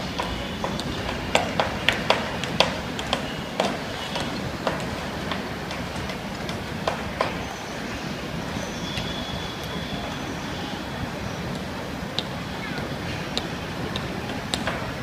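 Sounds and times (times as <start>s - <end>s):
distant traffic rumble: 0.0s - 15.0s
sharp knocks: 0.1s - 7.5s.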